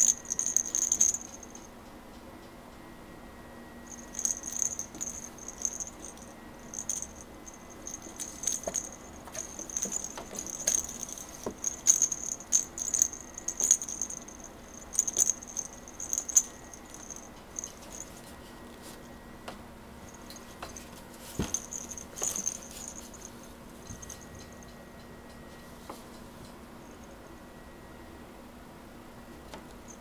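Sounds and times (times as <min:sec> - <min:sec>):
cat toy rattling and jingling: 0:00.0 - 0:01.7, 0:03.9 - 0:19.0, 0:20.0 - 0:24.7.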